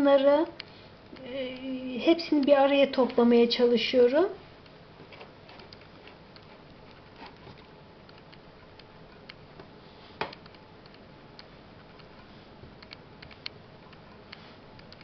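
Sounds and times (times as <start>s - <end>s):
small clicks: 10.3s - 15.0s.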